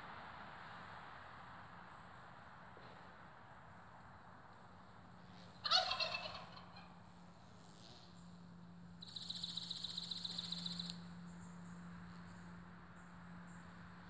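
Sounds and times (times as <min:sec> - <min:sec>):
insect pulsing buzz: 0:04.6 - 0:05.7, 0:06.8 - 0:13.8
turkey gobbling: 0:05.6 - 0:06.9.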